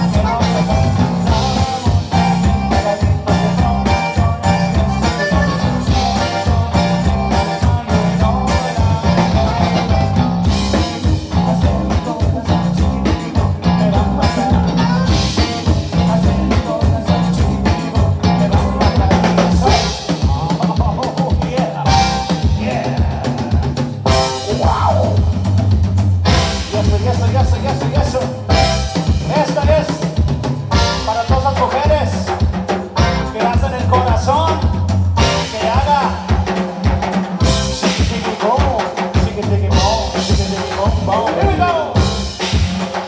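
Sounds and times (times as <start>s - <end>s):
button accordion: 0.0s - 20.8s, 26.3s - 30.1s, 30.7s - 34.5s
live band playing dance music: 0.0s - 43.0s.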